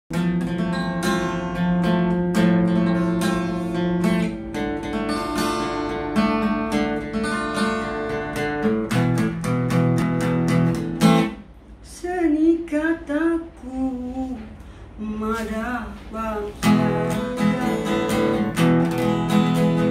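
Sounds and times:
acoustic guitar chords: 0.1 - 19.9.

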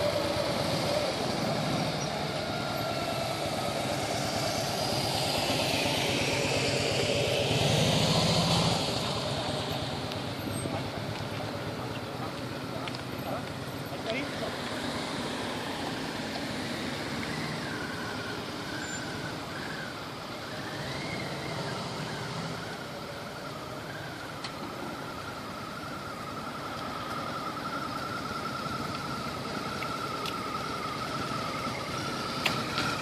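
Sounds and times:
high whine: 0.0 - 13.2
motorcycle engine rumble: 0.0 - 33.0.

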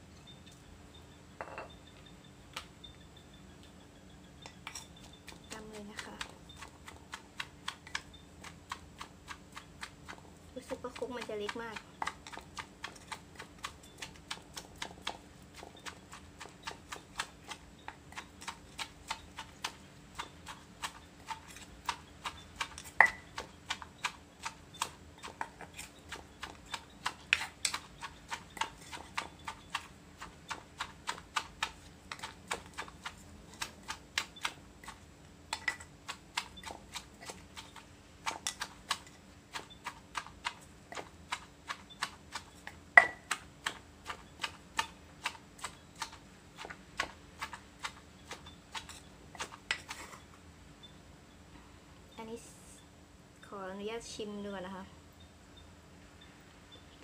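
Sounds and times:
wooden pestle pounding in mortar: 10.8 - 49.9.

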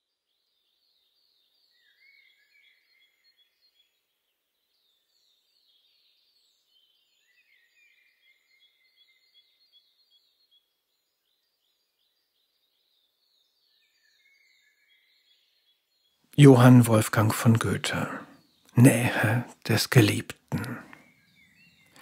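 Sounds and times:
bird chirping: 0.3 - 22.0
soft background hiss: 16.4 - 21.0.

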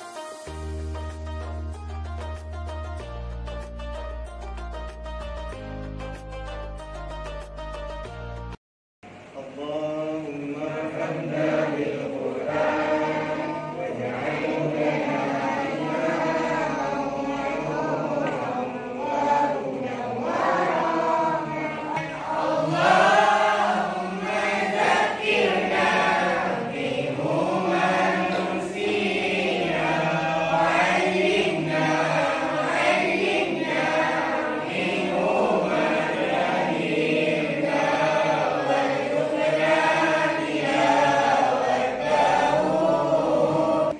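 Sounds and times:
voices chanting a prayer: 9.3 - 43.9.

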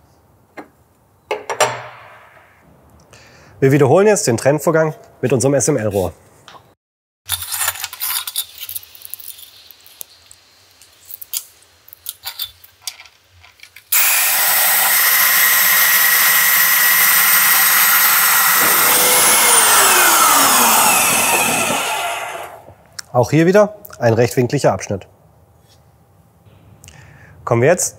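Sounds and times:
pipe cutter machine running: 13.9 - 22.8.

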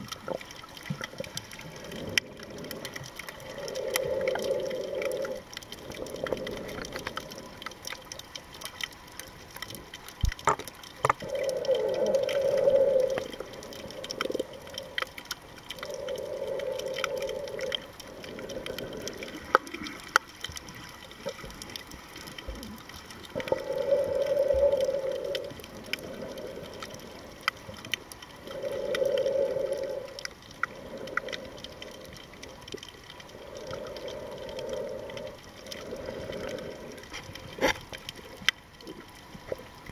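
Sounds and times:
faint clicks and crackles: 0.0 - 39.9
breathing through snorkel: 1.7 - 7.6, 11.2 - 15.0, 15.8 - 20.0, 23.4 - 27.3, 28.4 - 32.2, 33.2 - 37.3.

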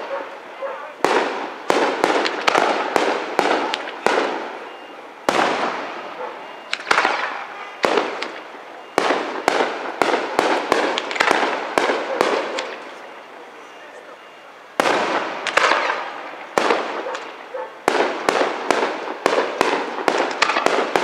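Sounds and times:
firework shells bursting: 1.0 - 13.0, 14.8 - 21.0.

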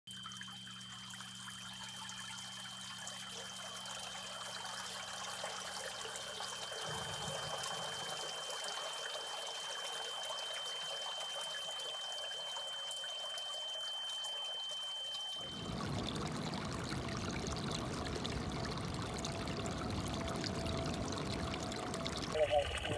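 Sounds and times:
water jetting and splashing: 6.7 - 10.2, 15.4 - 22.9
low hum: 15.4 - 22.9.

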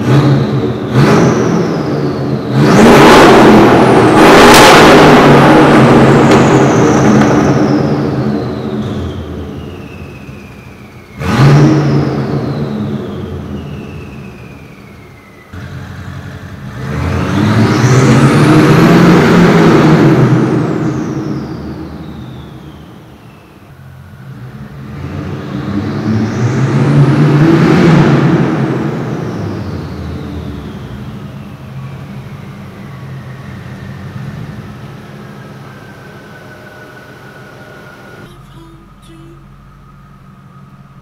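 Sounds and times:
car engine revving: 0.0 - 14.2, 15.6 - 22.2, 24.2 - 41.0.

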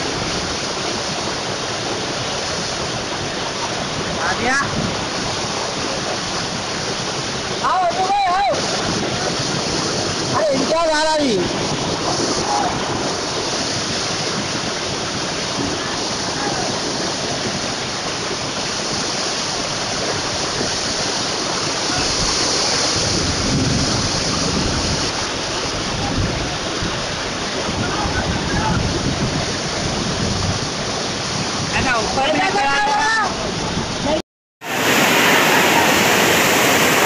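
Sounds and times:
floodwater rushing down street: 0.0 - 37.0.

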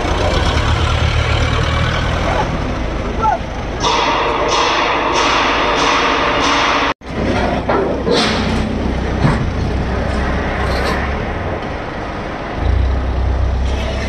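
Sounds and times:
forklift engine running: 0.0 - 14.0
metal knocks and clanks: 3.7 - 11.7.

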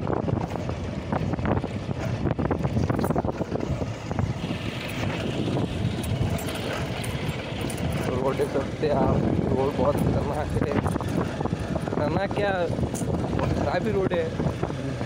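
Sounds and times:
motorcycle engine running: 0.0 - 15.0
wind buffeting microphone: 0.0 - 15.0
knocks and rattles: 0.3 - 8.8.

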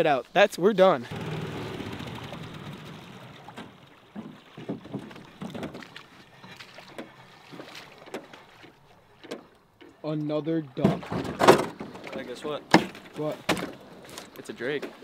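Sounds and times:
small boat motor running: 1.0 - 9.2
water splashing: 1.0 - 15.0.

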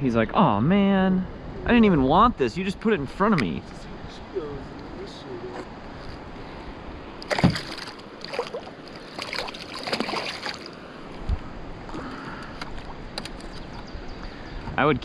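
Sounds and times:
fish splashing in water: 7.2 - 10.8
dull thump: 7.3 - 7.9.

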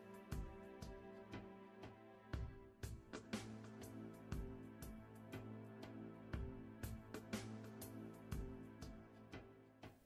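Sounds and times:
quiet background music: 0.0 - 10.0.

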